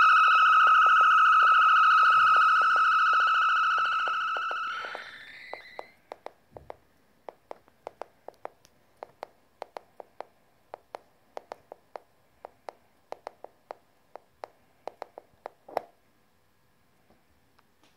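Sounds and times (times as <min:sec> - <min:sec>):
electronic tone with upward glide: 0:00.0 - 0:05.9.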